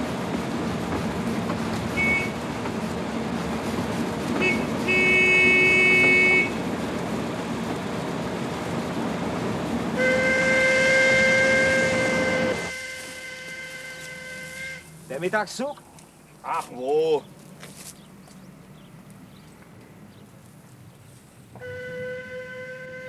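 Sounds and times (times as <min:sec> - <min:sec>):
passing steam train: 0:00.0 - 0:15.7, 0:19.6 - 0:23.0
truck running noise: 0:00.0 - 0:23.0
steam locomotive whistle: 0:01.9 - 0:02.4, 0:04.4 - 0:06.6, 0:09.9 - 0:14.9, 0:21.6 - 0:23.0
truck horn toots: 0:01.9 - 0:02.4, 0:04.4 - 0:06.6, 0:10.0 - 0:15.0, 0:21.6 - 0:23.0.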